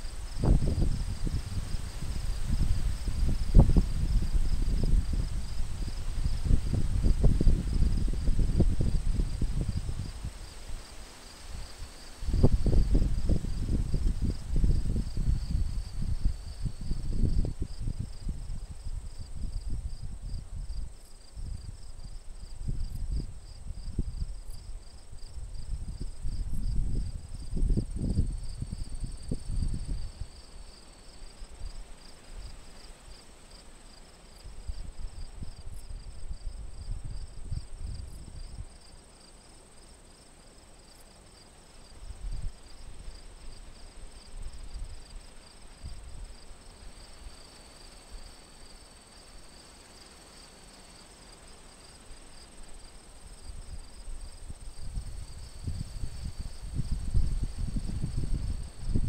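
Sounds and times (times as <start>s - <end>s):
wind buffeting microphone: 0.0s - 10.4s, 11.6s - 24.5s, 25.1s - 30.3s, 53.5s - 59.0s
insects trilling: 0.0s - 59.0s.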